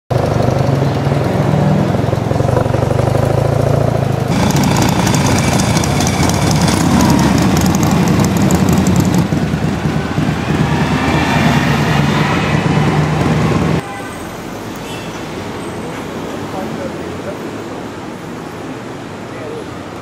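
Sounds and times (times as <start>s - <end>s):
motorcycle engine running: 0.1s - 11.2s
several motorcycle engines: 0.1s - 14.0s
street traffic: 0.1s - 20.0s.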